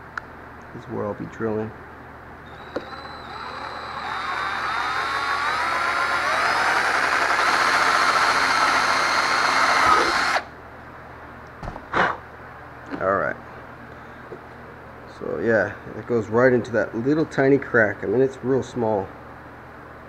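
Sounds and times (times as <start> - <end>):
cordless drill whining: 2.4 - 10.5.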